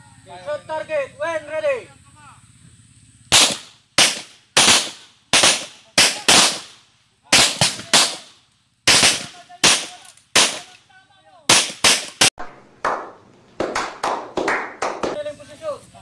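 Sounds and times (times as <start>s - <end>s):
handgun shots with echo: 11.5s - 12.3s.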